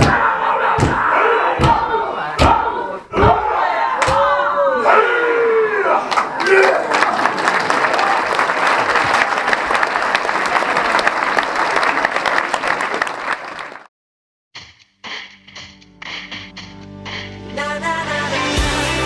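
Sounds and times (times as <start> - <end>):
audience applauding: 6.1 - 13.9
music: 14.6 - 19.0.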